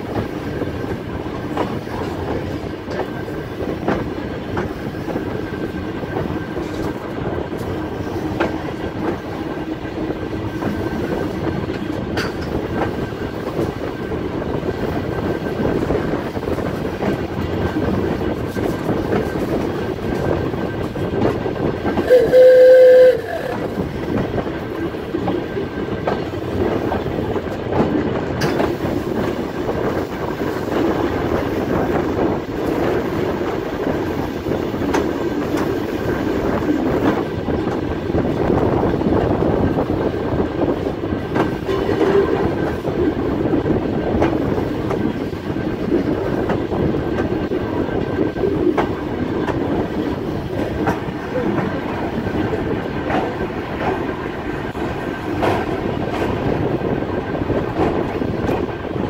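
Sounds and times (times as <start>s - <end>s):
train wheels rumbling on rails: 0.0s - 59.0s
short loud horn blast: 22.1s - 23.5s
clicks at rail joints: 26.0s - 29.4s.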